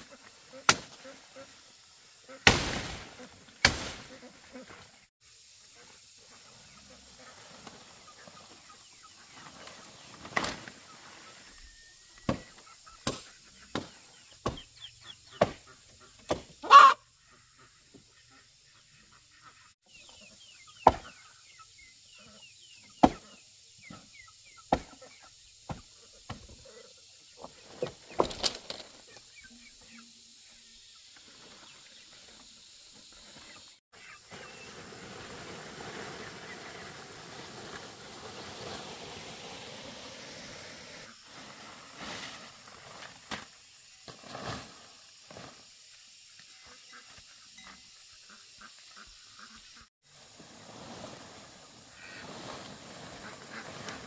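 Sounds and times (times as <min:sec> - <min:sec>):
leaves rustling: 0:00.0 - 0:05.1, 0:06.3 - 0:11.8, 0:31.0 - 0:45.8, 0:50.0 - 0:54.0
chopping tree branches: 0:00.7 - 0:01.0, 0:02.4 - 0:04.0, 0:20.8 - 0:21.2, 0:24.7 - 0:25.0.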